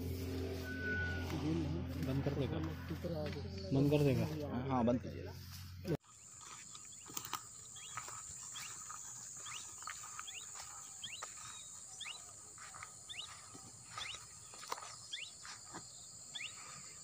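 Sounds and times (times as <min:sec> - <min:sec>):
high-pitched insect drone: 0:06.0 - 0:15.5
bird chirping: 0:06.0 - 0:17.0.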